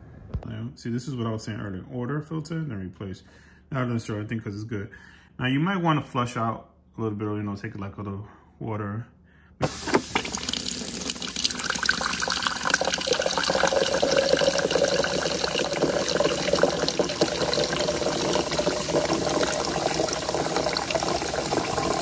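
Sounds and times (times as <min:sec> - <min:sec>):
water stream into plastic cup: 0:09.6 - 0:22.0.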